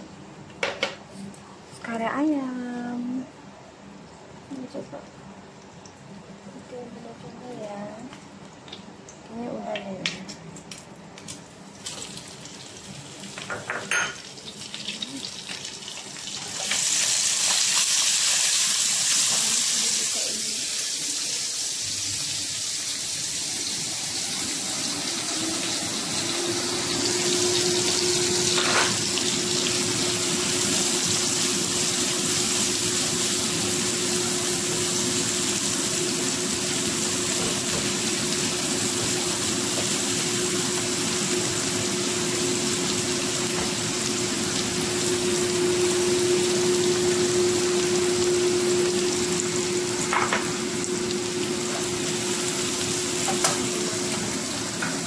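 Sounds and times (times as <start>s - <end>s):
food sizzling in hot oil: 11.2s - 55.0s
extractor fan humming: 15.9s - 55.0s.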